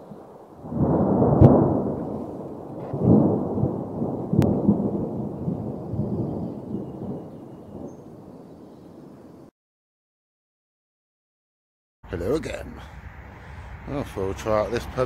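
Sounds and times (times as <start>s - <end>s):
low rolling thunder: 0.0s - 9.5s.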